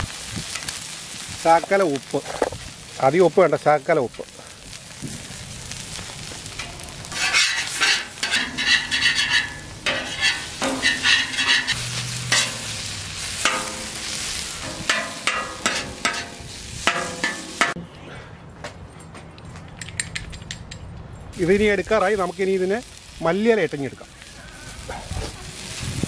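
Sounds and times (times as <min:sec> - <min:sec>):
food sizzling on griddle: 0:00.0 - 0:17.8, 0:21.4 - 0:26.0
metal spatula scraping griddle: 0:06.5 - 0:17.8.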